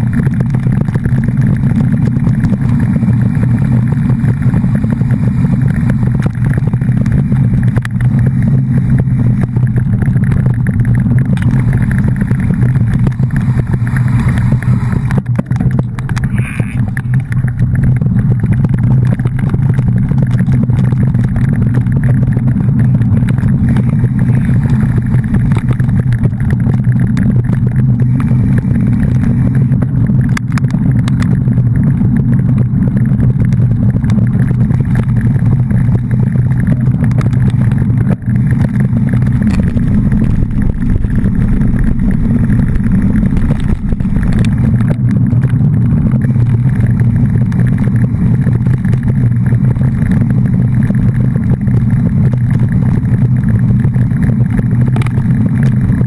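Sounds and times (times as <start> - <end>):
moving vehicle rumble: 0.0 - 56.0.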